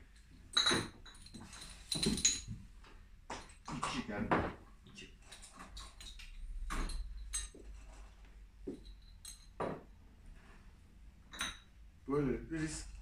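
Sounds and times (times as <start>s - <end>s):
glass bottles clinking: 0.5s - 2.6s, 5.3s - 7.7s, 8.7s - 9.9s, 11.3s - 11.7s.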